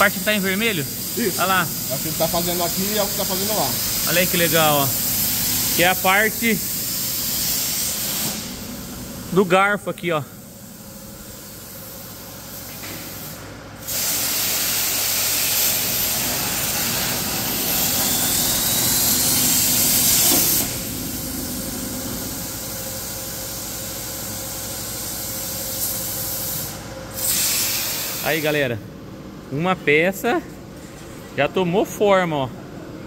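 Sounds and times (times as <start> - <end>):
plasma torch hissing: 0.0 - 8.7, 11.3 - 21.3, 22.2 - 28.6.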